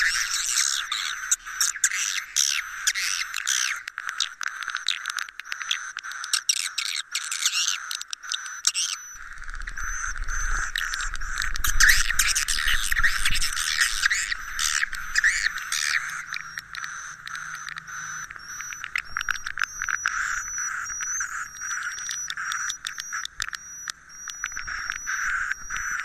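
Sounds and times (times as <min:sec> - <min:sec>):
swiftlets twittering: 0:07.5 - 0:26.0.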